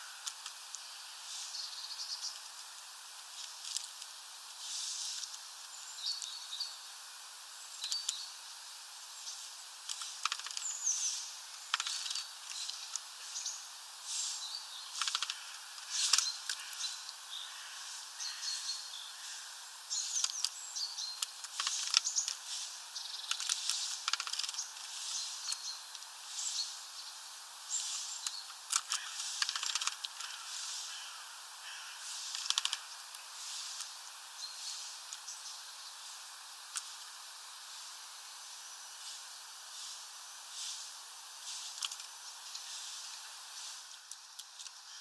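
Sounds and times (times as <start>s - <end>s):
songbirds chirping: 0.0s - 45.0s
steady hiss: 0.0s - 45.0s
sharp ticks and taps: 32.3s - 33.2s.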